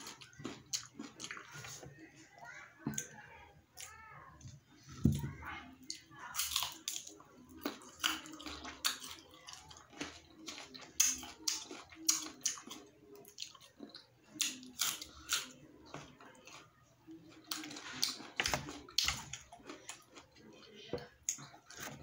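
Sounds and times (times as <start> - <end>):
person chewing crunchy fruit: 0.0 - 1.9, 6.4 - 22.0.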